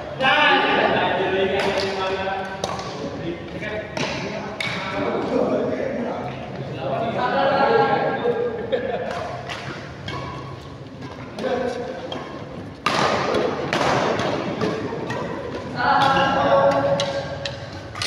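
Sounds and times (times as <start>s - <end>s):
rackets hitting shuttlecock: 1.5s - 3.1s, 3.9s - 5.0s, 9.0s - 18.0s.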